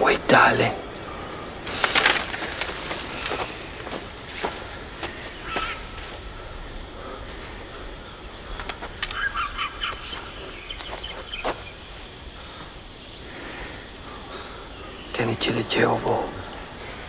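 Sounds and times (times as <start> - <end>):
birds calling: 0.0 - 17.0
high insect drone: 0.0 - 17.0
sharp clicks: 8.6 - 10.3.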